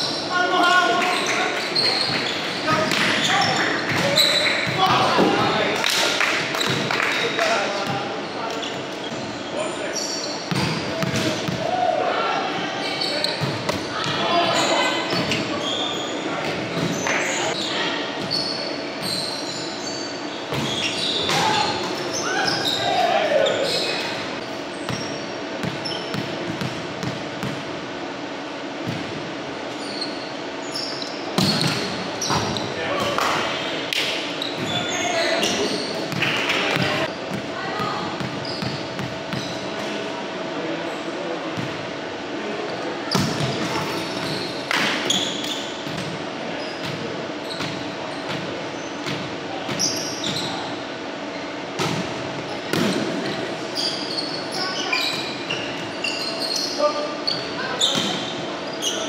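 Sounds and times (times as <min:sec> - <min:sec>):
sneaker squeaks on court: 0:01.0 - 0:05.3, 0:07.8 - 0:11.6, 0:12.8 - 0:27.6, 0:29.7 - 0:32.8, 0:34.3 - 0:37.2, 0:38.2 - 0:39.8, 0:43.1 - 0:50.7, 0:51.3 - 0:59.0.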